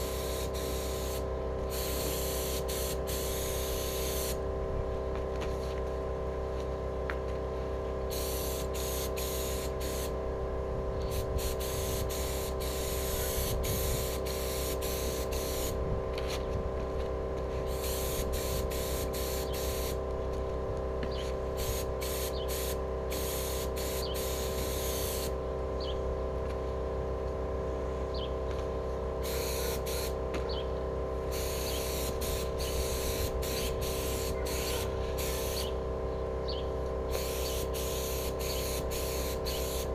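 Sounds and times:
paint spray gun hissing: 0.0s - 4.5s, 8.1s - 10.2s, 11.0s - 15.8s, 17.5s - 20.1s, 21.1s - 25.4s, 29.2s - 30.2s, 31.2s - 35.8s, 37.1s - 39.9s
steady hum: 0.0s - 39.9s.

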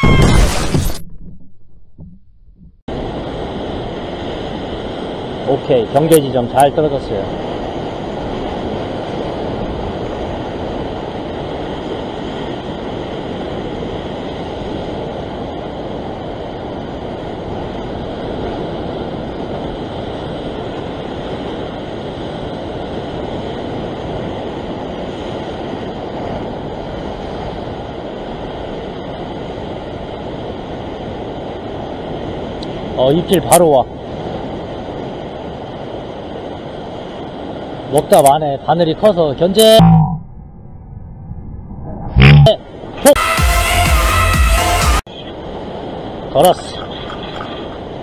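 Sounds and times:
sea surf washing over rocks: 2.9s - 39.8s.

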